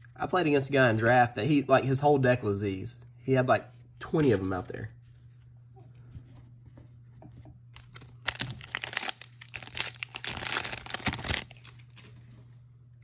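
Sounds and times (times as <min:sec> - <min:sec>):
foil wrapper tearing and crinkling: 0:07.8 - 0:12.1.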